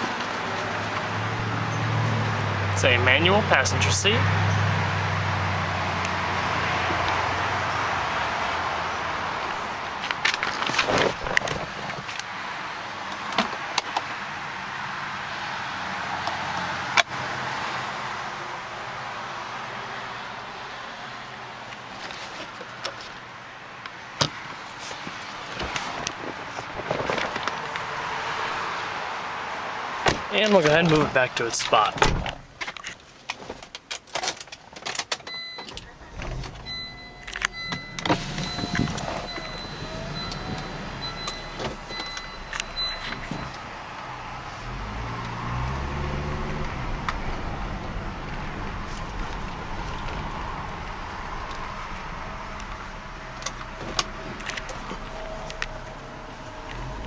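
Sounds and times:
car engine cranking and idling: 29.9s - 57.0s.

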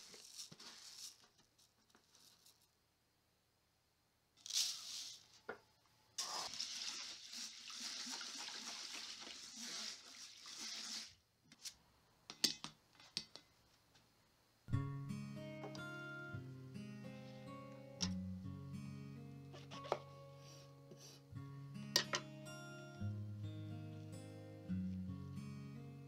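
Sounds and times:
rice rubbed by hand: 6.2s - 11.1s.

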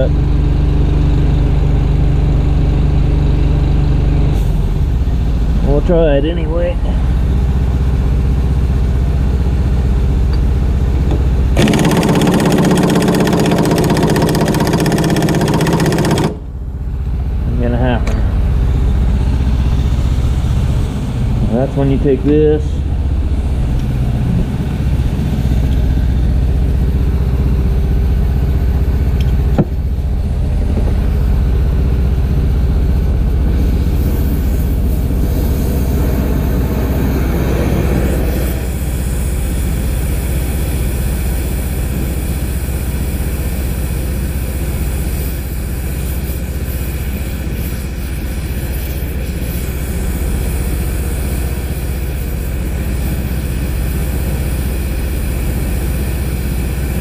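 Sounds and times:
engine rumbling: 0.0s - 57.0s
torch flame hissing: 33.2s - 57.0s.

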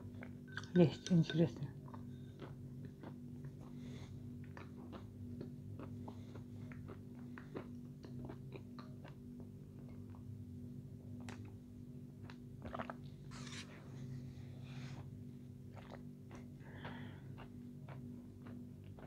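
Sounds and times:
steady low hum: 0.0s - 19.0s
person chewing food: 1.8s - 10.4s, 12.2s - 13.7s, 14.8s - 19.0s.

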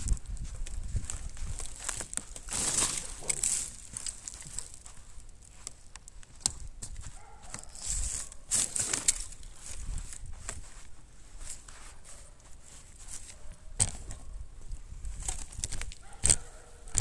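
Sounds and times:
bike rattles and clicks: 0.0s - 9.5s, 13.1s - 14.3s, 15.1s - 17.0s
tyres crunching on snow: 0.4s - 14.0s.

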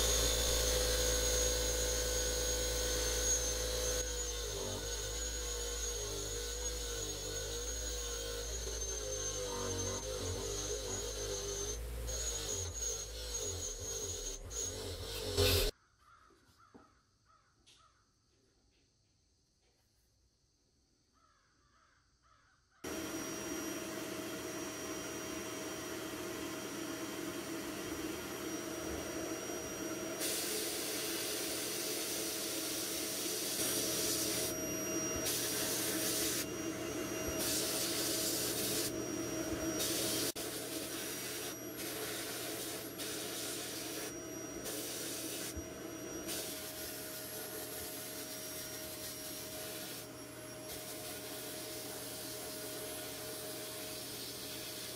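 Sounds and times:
machine hum: 0.0s - 15.7s
sandblast gun hissing bursts: 30.2s - 34.6s, 37.3s - 39.0s.

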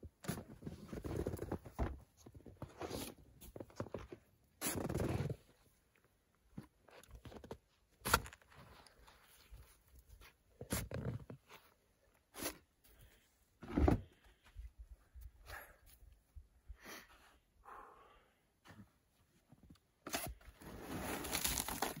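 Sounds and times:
snow shovel crunching scrapes: 20.6s - 22.0s.

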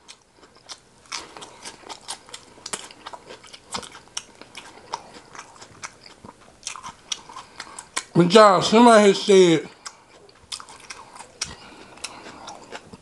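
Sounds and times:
lettuce crunching: 0.0s - 8.2s, 9.7s - 13.0s.

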